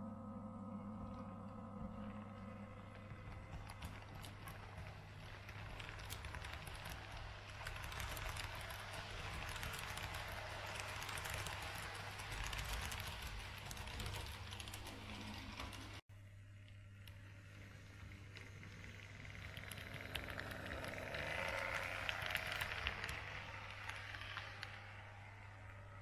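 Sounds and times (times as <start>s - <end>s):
steady hum: 0.0s - 6.4s
model train wheels rattling: 2.9s - 16.0s, 17.4s - 25.2s.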